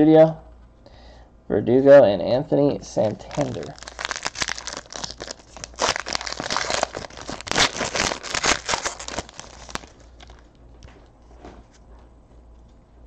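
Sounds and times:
foil wrapper crinkling and tearing: 3.0s - 10.5s.

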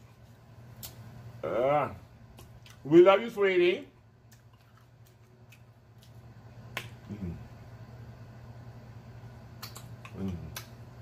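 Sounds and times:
faint low hum: 0.0s - 11.0s
wet clicks and smacks: 0.8s - 1.0s, 2.3s - 2.8s, 4.2s - 7.0s, 9.5s - 10.8s
person humming mm: 7.0s - 7.5s, 10.1s - 10.7s.

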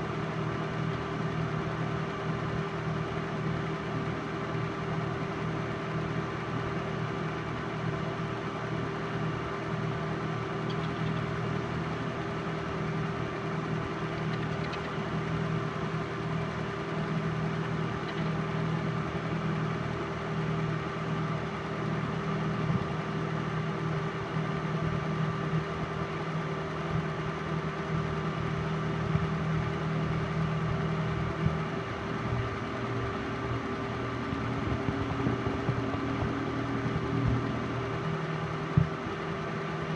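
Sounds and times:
film projector running: 0.0s - 21.2s.

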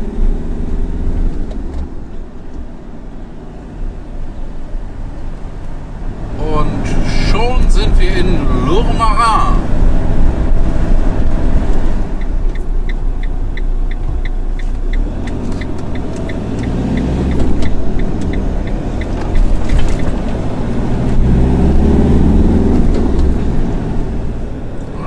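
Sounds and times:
road noise: 0.0s - 25.0s
van engine: 0.0s - 25.0s
turn indicator ticking: 10.5s - 25.0s.

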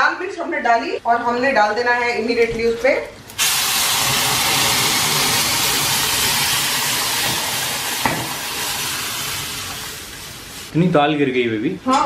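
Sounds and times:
food sizzling in hot oil: 3.4s - 10.8s.

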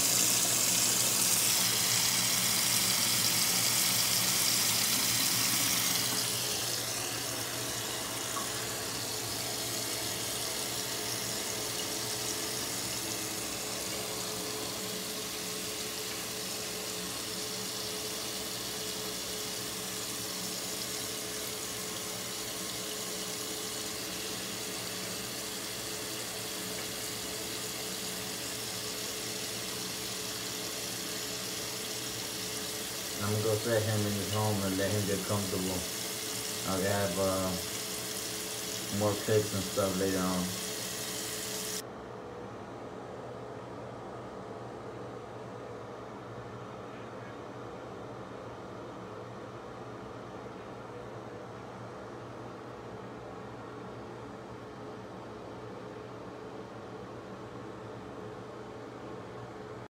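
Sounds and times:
tap water running into sink: 0.0s - 41.8s.

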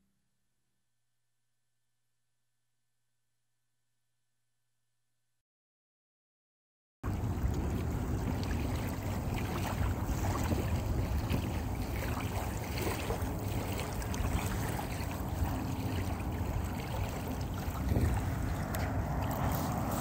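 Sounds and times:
waves lapping and splashing: 7.0s - 20.0s
wind rumble on microphone: 7.0s - 20.0s.

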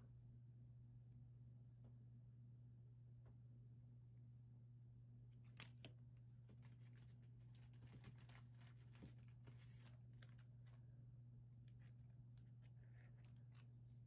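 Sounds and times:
steady low hum: 0.0s - 14.0s
plastic packaging crinkling: 5.4s - 10.8s, 11.6s - 14.0s.

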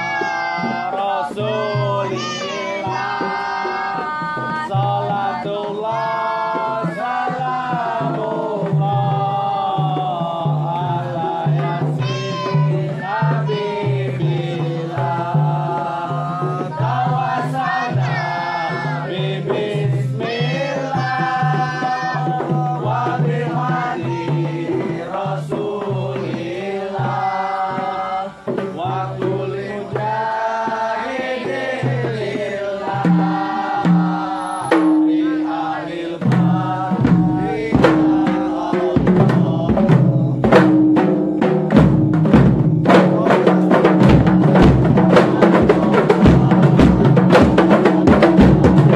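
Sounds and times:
hand-struck frame drums: 0.0s - 48.9s
people singing: 0.0s - 48.9s.

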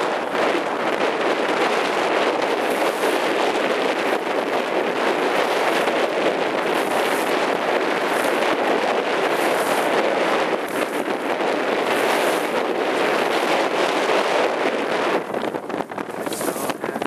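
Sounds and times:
wind blowing across microphone: 0.0s - 17.0s.

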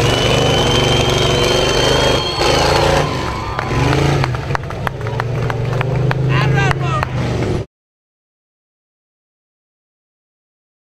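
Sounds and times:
high whine: 0.0s - 4.3s
truck engine revving: 0.0s - 7.7s.

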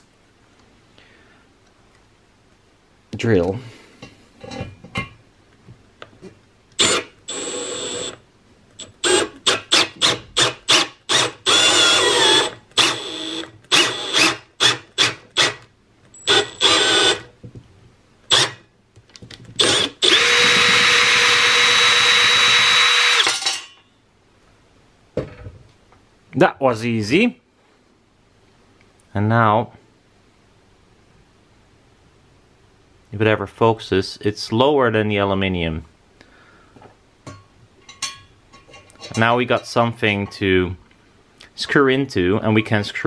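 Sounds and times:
electric drill driving insert: 6.8s - 8.2s, 8.8s - 17.3s, 18.3s - 18.6s, 19.6s - 23.5s.

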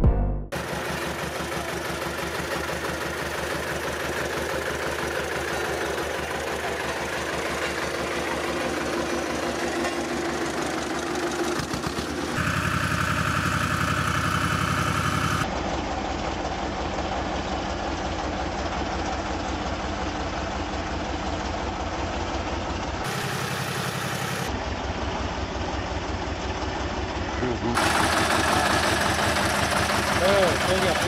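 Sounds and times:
road roller engine chugging: 0.5s - 31.0s.

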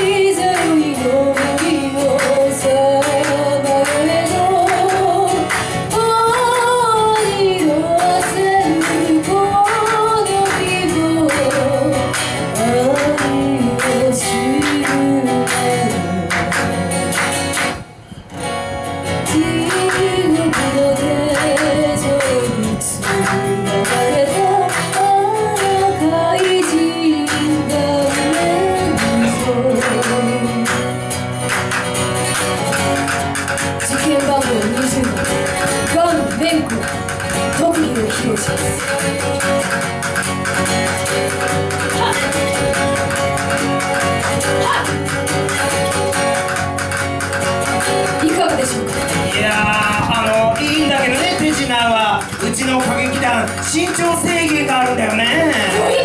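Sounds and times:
woman singing pop song: 0.0s - 17.5s, 19.1s - 31.3s, 33.7s - 39.2s, 41.8s - 42.6s, 44.4s - 45.1s
strummed acoustic guitar: 0.0s - 56.0s
steady beat: 27.6s - 56.0s.

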